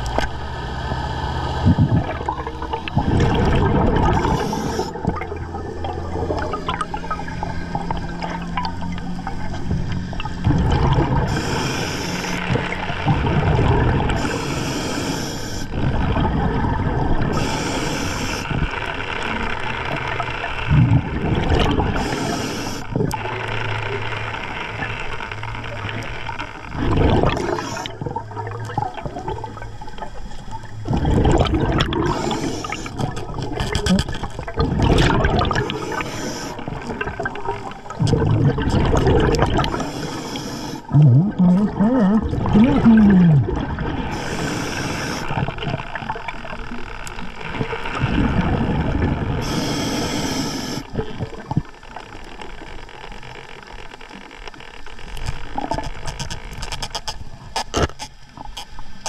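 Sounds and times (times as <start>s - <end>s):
exhaled air bubbling: 0.0s - 24.1s, 24.8s - 52.9s
regulator hiss on inhale: 4.1s - 5.1s, 11.2s - 12.8s, 14.1s - 15.7s, 17.3s - 19.4s, 21.9s - 23.4s, 27.3s - 28.0s, 32.0s - 33.2s, 35.6s - 36.9s, 39.6s - 41.0s, 44.1s - 45.5s, 49.4s - 51.1s.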